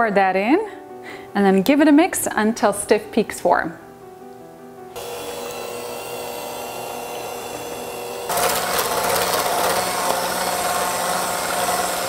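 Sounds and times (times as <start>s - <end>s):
electric hand mixer whirring: 5.0s - 12.0s.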